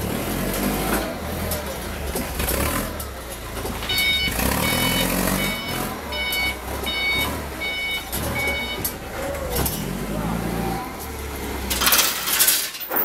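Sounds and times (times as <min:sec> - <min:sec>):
engine running rumble: 0:00.0 - 0:12.8
reversing alarm beeping: 0:03.8 - 0:09.7.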